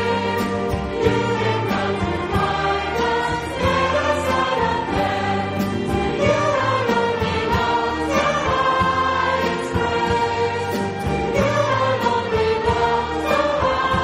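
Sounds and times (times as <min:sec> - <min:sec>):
choir singing a hymn: 0:00.0 - 0:14.0.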